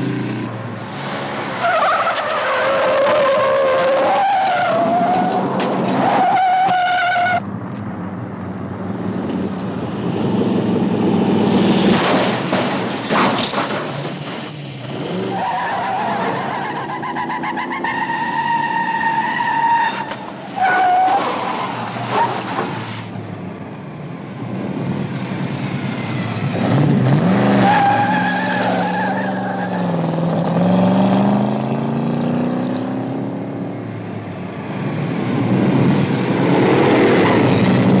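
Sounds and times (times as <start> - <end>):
tyres squealing and skidding: 1.2 - 7.4, 11.9 - 23.2, 24.4 - 30.8
car engine revving: 24.4 - 38.0.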